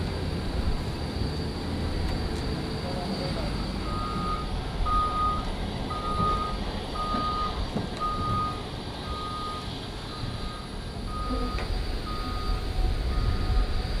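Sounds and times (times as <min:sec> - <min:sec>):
forklift reverse alarm beeping: 0:02.8 - 0:14.0.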